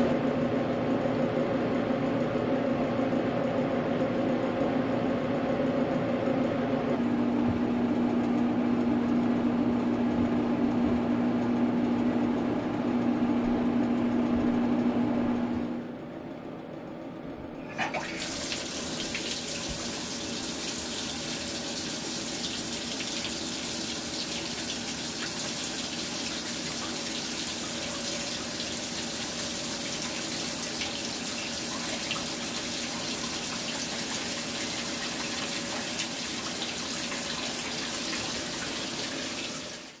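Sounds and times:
water running from tap: 17.6 - 40.0.

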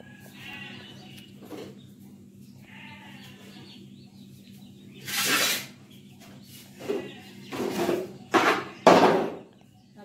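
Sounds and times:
steady low hum: 0.0 - 8.8
short rough scraping: 5.0 - 5.8.

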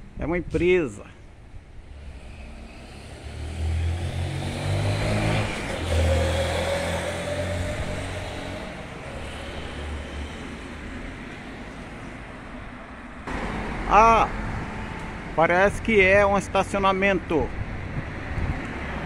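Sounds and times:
steady traffic noise: 0.0 - 19.0
vehicle engine passing: 1.9 - 12.2.

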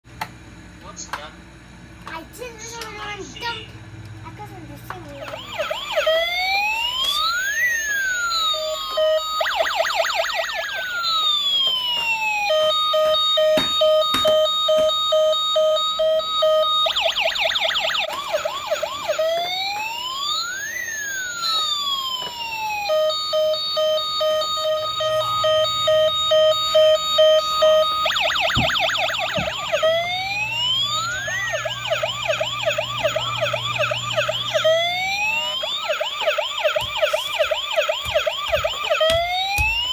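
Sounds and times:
toy electronic siren: 5.0 - 39.9.

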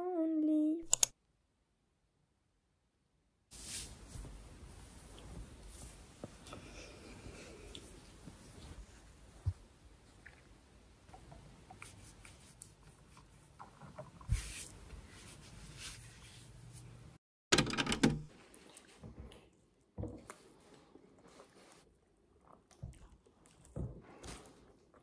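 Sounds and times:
objects knocking and clattering: 17.5 - 18.3.

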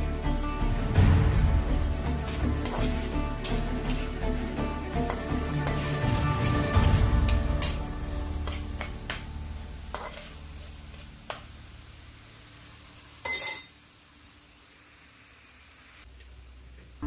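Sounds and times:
faint sizzle: 0.0 - 17.0
metal spatula scraping frying pan: 2.2 - 4.4, 5.0 - 11.5, 13.2 - 13.7.

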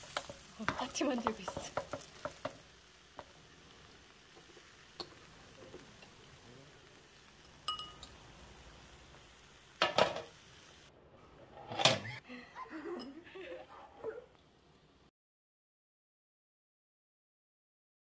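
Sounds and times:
metal spoon scraping griddle: 11.3 - 12.2.

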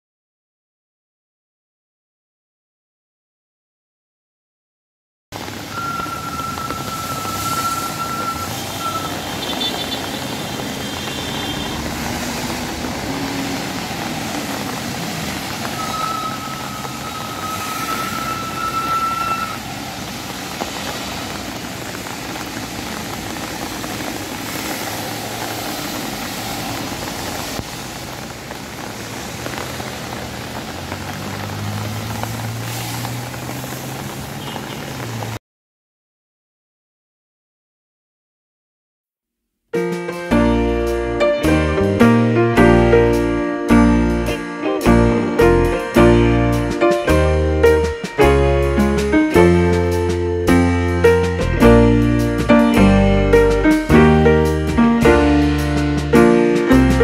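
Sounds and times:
vehicles passing on wet street: 5.4 - 35.4, 39.8 - 57.0
high steady tone: 5.7 - 9.2, 15.7 - 19.6.

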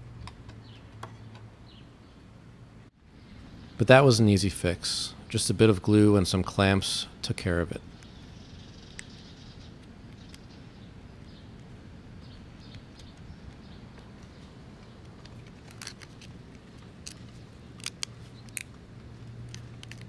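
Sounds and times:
steady low hum: 0.0 - 20.0
sharp clicks: 8.8 - 9.2, 9.8 - 10.5.

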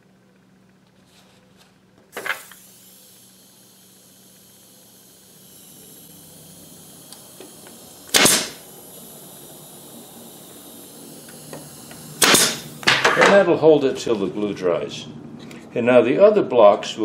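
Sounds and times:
pneumatic nailer firing: 2.1 - 13.4.

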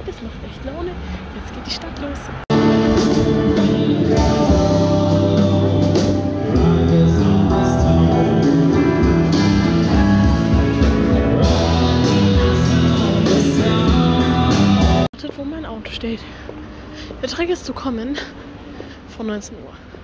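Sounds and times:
person singing: 2.5 - 9.4, 10.7 - 15.1
drum kit playing: 2.5 - 15.1
guitars playing: 2.5 - 15.1.

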